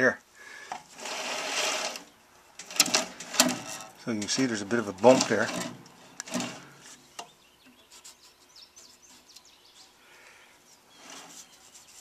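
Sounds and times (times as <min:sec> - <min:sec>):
low background noise: 0:00.0 - 0:12.0
faint bird chirps: 0:06.0 - 0:12.0.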